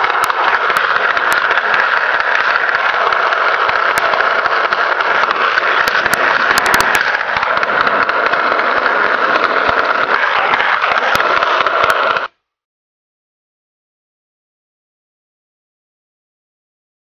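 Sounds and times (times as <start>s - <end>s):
sharp clicks: 0.0s - 12.3s
skateboard wheels rolling on concrete: 0.0s - 12.4s.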